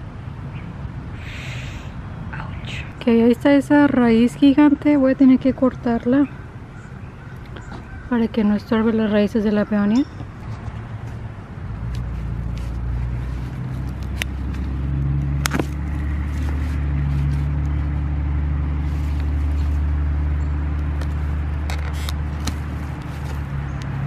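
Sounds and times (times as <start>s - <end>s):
vehicle engine droning: 1.8s - 24.0s
tools clicking and scraping at root: 20.9s - 23.9s.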